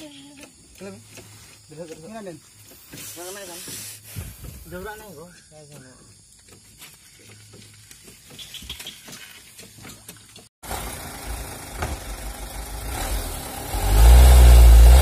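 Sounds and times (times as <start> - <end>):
truck engine idling: 10.6 - 13.0.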